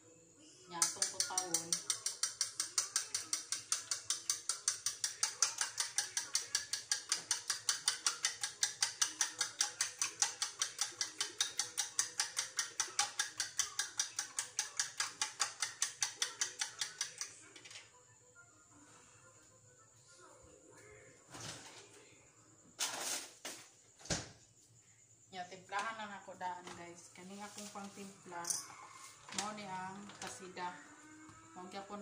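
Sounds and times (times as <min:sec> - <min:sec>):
whisk clinking in ceramic bowl: 0:00.9 - 0:17.3.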